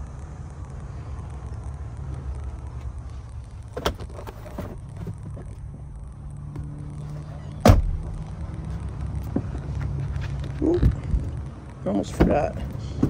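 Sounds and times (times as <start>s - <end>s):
steady low hum: 0.0s - 13.0s
loud thump: 7.6s - 8.0s.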